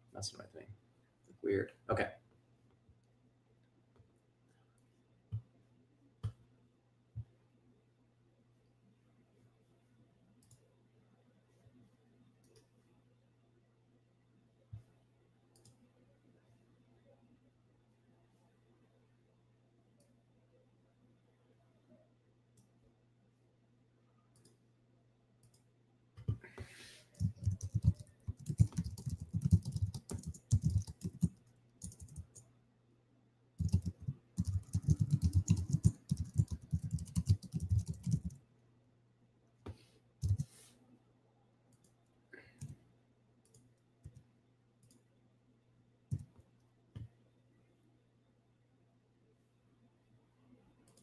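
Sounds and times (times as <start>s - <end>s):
typing on computer keyboard: 27.2s - 32.4s, 33.6s - 38.4s, 40.2s - 40.5s.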